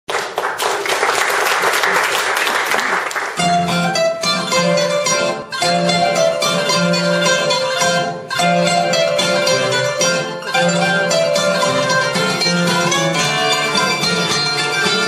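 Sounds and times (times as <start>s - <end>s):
audience applause: 0.1s - 3.4s
band playing plucked lutes and guitar: 3.3s - 15.0s.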